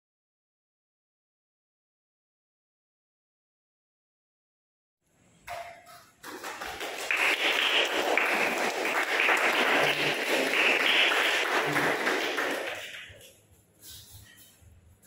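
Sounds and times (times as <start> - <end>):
group of people applauding: 6.2 - 13.3.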